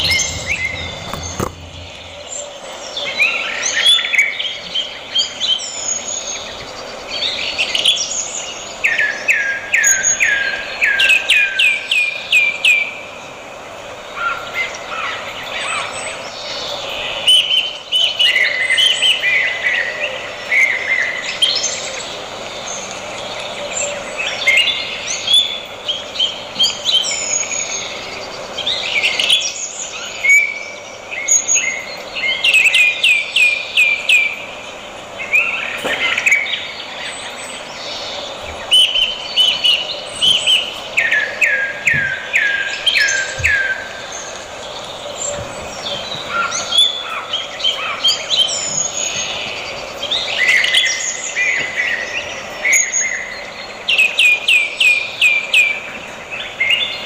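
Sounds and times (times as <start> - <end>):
birds singing and chirping: 0.0 - 57.0.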